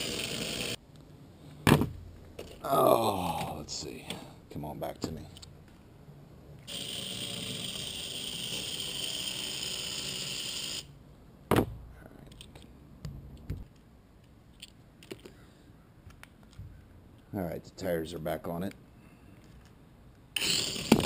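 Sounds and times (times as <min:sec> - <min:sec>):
toy car motor whine: 0:00.0 - 0:00.8, 0:06.7 - 0:10.9, 0:20.4 - 0:21.0.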